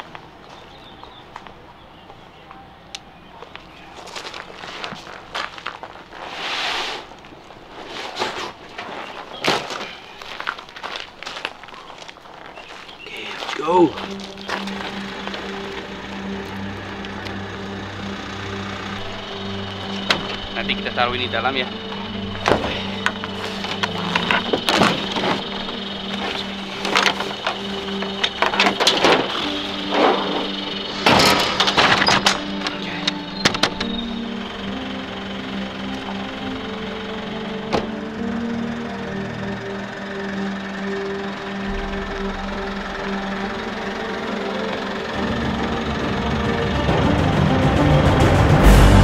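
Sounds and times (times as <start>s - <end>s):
rucksack rustling and thudding: 4.0s - 11.4s, 21.7s - 34.4s
background music with held notes: 12.9s - 49.0s.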